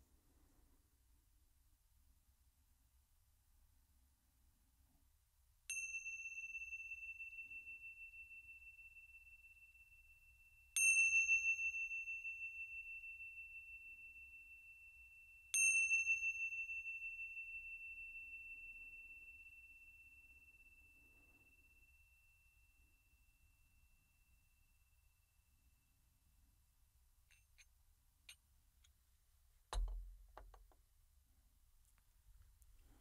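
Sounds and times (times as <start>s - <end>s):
small hand cymbals ringing: 5.7s - 25.4s.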